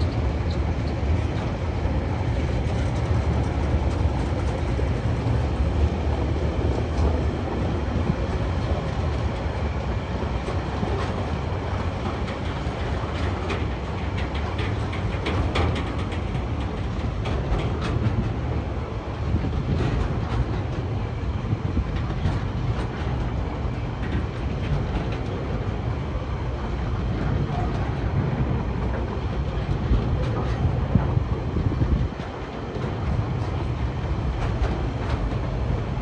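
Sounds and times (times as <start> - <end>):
steel wheels rumbling on rails: 0.0 - 36.0
wheels clicking over track: 10.4 - 36.0.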